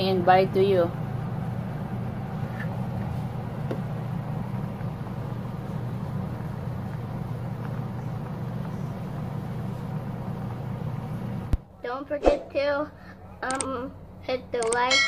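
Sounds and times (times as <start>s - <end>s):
gas burner rumble: 0.0s - 11.6s.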